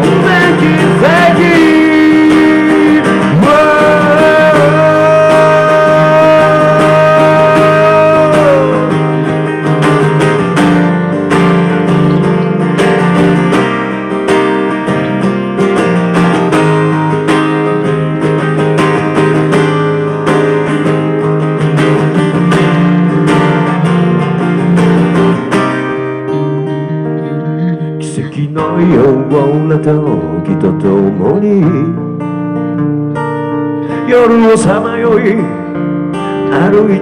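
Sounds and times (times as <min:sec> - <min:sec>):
acoustic guitar strumming: 0:00.0 - 0:37.0
amplified bass string notes: 0:22.2 - 0:28.1.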